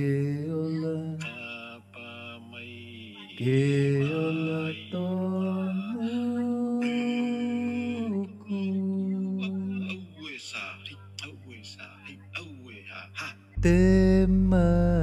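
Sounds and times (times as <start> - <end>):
man singing slow song: 0.0 - 15.0
steady low hum: 13.6 - 15.0.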